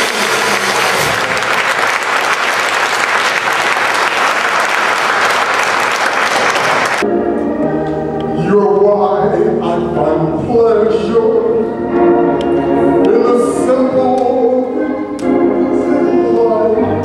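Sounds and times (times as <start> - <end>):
audience applauding: 0.0 - 7.0
music: 7.0 - 17.0.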